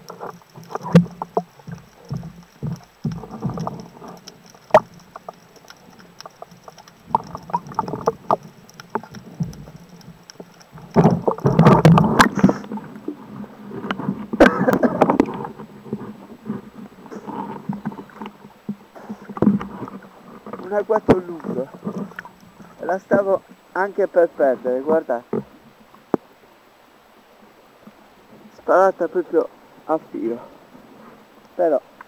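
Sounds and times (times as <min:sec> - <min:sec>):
gear knocks and clicks: 0:00.0 - 0:13.1, 0:13.7 - 0:23.4
water splashing and sloshing: 0:00.0 - 0:26.5.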